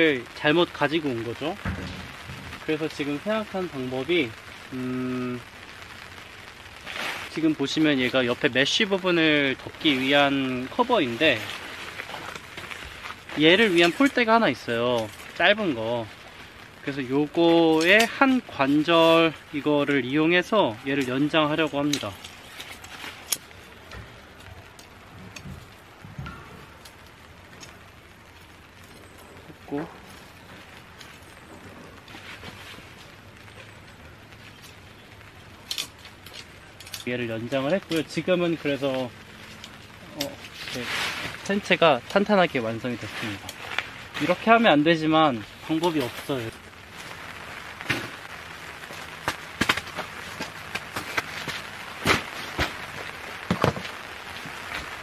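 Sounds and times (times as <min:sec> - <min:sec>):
faint steady hiss: 0:00.0 - 0:55.0.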